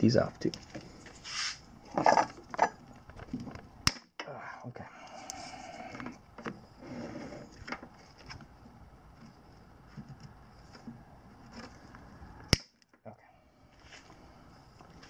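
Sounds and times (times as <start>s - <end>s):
wire cutters snapping wire: 12.5s - 12.9s.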